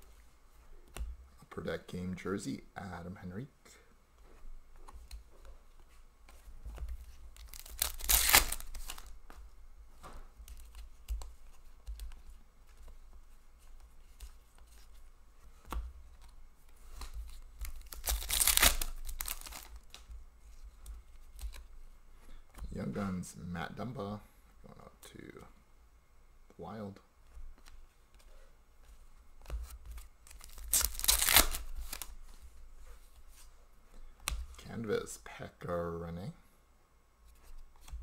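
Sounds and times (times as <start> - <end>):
cards shuffling and clicking: 4.8 - 21.7, 27.6 - 33.4
card pack wrappers ripping: 7.4 - 9.1, 17.6 - 20.0, 30.2 - 32.1.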